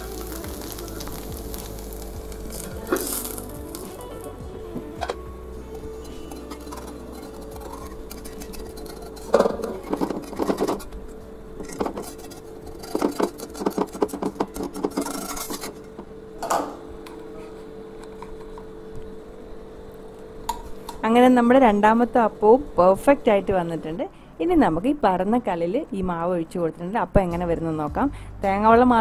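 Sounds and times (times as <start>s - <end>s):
steady hum: 0.0s - 29.0s
metal utensil scraping an iron pan: 6.0s - 10.9s.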